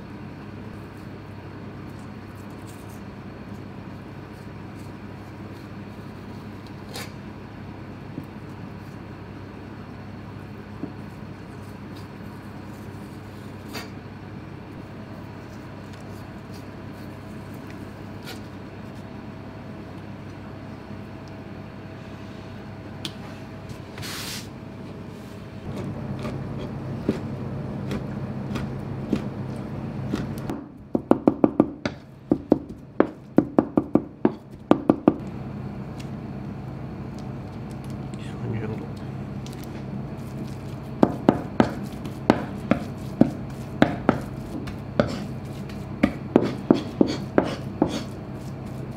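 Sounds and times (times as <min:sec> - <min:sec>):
steady background hum: 0:00.0 - 0:48.9
knife chopping on cutting board: 0:41.0 - 0:48.2.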